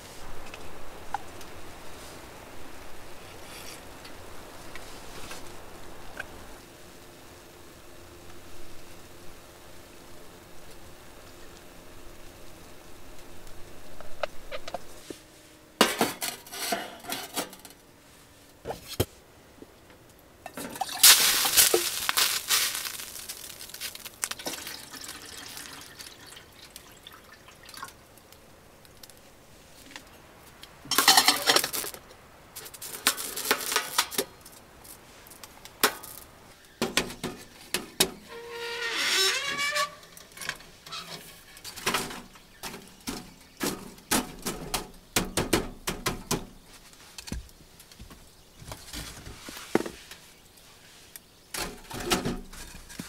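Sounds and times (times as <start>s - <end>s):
pots and utensils clattering: 15.8s - 17.7s, 20.5s - 22.0s, 30.9s - 32.0s, 51.6s - 53.0s
water pouring and splashing: 20.5s - 28.0s.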